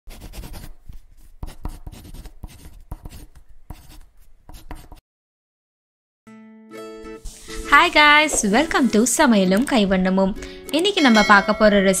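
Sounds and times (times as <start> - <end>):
pencil sketching on paper: 0.1 - 5.0.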